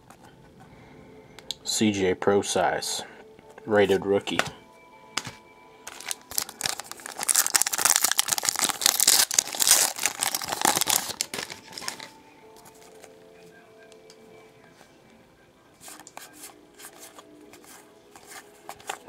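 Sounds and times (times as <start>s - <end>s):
plastic wrapper tearing and crinkling: 5.9s - 12.1s.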